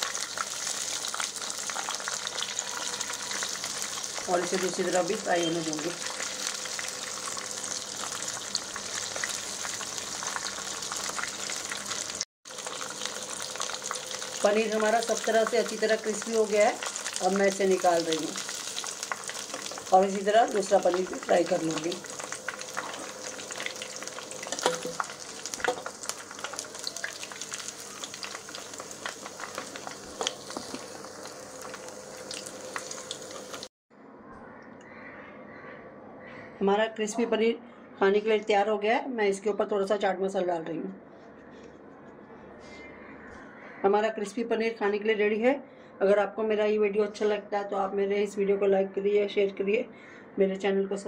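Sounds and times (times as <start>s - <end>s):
food deep-frying in oil: 0.0s - 33.7s.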